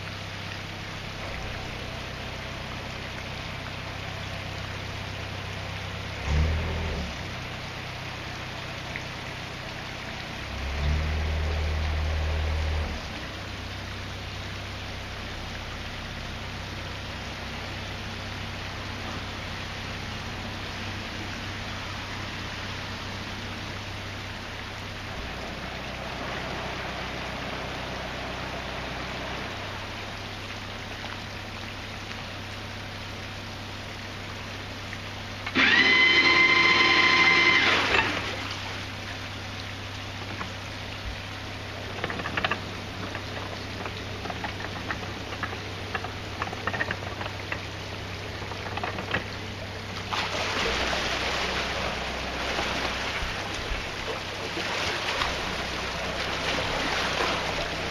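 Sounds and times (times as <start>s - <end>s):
diesel boat engine idling: 0.0s - 37.7s, 38.3s - 50.1s, 50.8s - 57.9s
propeller churning water: 0.0s - 57.9s
boat horn: 35.6s - 38.2s.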